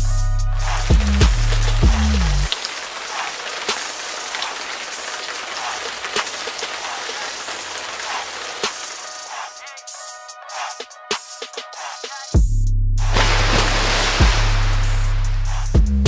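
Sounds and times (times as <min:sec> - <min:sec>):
backing music: 0:00.0 - 0:02.5, 0:06.8 - 0:16.0.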